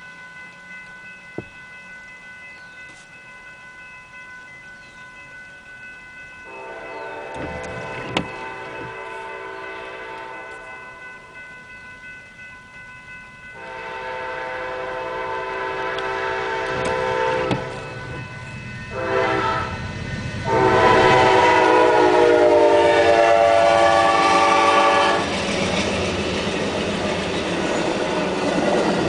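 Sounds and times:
train wheels on rails: 5.2s - 29.0s
train horn blasts: 6.5s - 10.8s, 13.6s - 18.2s, 18.9s - 19.8s, 20.4s - 25.3s.

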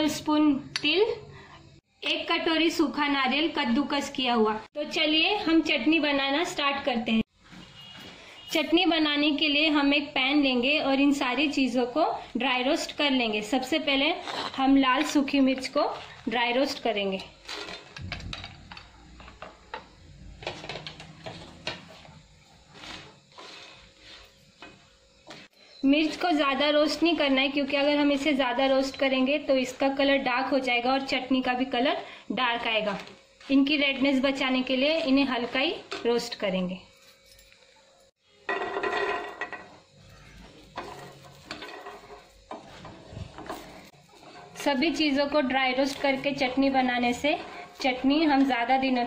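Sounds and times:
spatula scraping chillies in pan: 22.7s - 24.8s, 40.6s - 48.8s.

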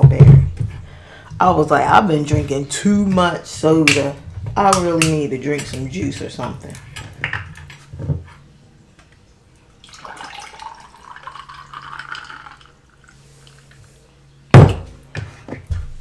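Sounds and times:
juice pouring into a glass: 9.8s - 13.8s
loud thump: 14.6s - 14.9s.

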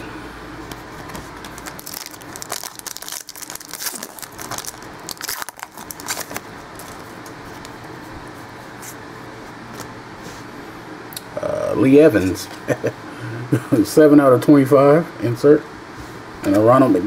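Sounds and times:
foil wrapper crinkling and tearing: 1.2s - 7.7s.

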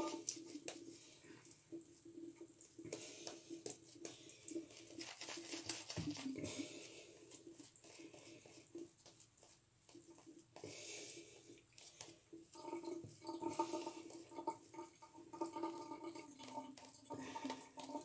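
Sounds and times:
shaving brush scratching through beard: 4.8s - 6.6s.

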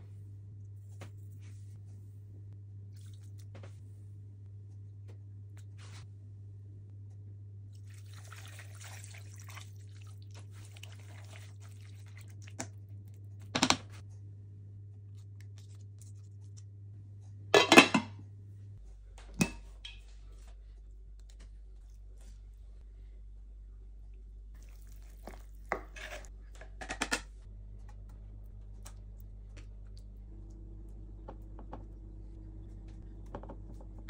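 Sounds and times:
liquid splashing into a pot: 7.7s - 12.8s.

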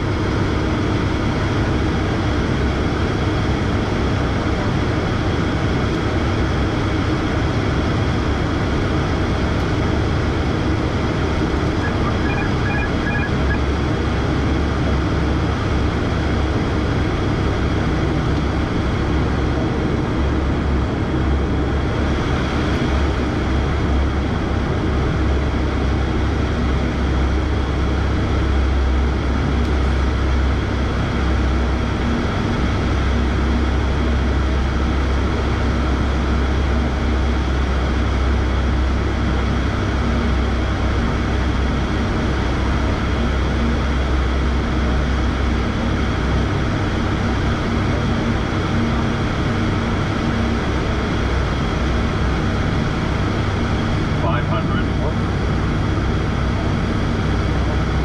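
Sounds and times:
turboprop engine drone: 0.0s - 58.0s.

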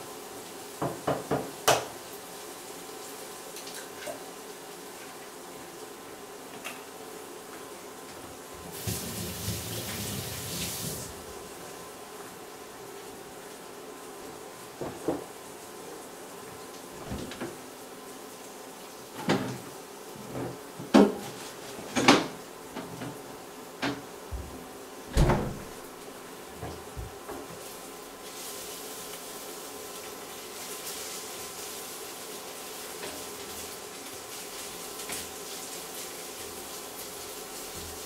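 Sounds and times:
food sizzling in pan: 0.0s - 20.0s, 27.4s - 38.0s
wooden knocks and clunks: 17.0s - 17.6s, 24.3s - 25.8s.

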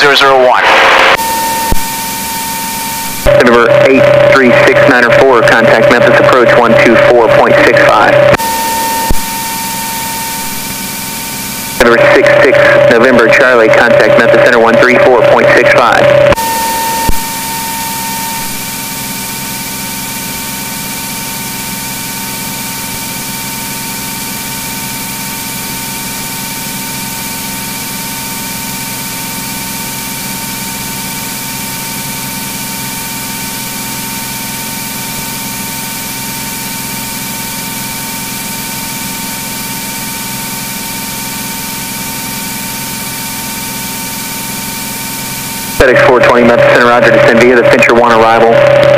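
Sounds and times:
airplane engine and propeller droning: 0.0s - 48.9s.

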